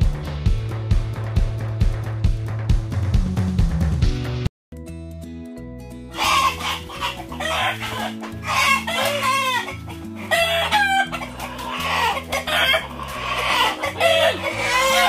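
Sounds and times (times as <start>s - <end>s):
background music: 0.0s - 15.0s
chickens squawking and clucking: 6.1s - 15.0s.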